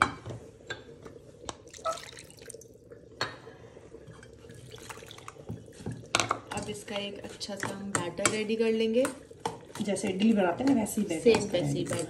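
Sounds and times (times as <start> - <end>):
water pouring into bowl: 1.6 - 3.1, 4.1 - 6.6.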